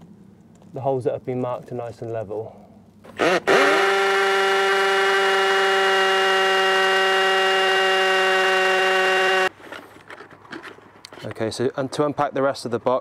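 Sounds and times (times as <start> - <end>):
drill boring into stone: 3.1 - 9.5.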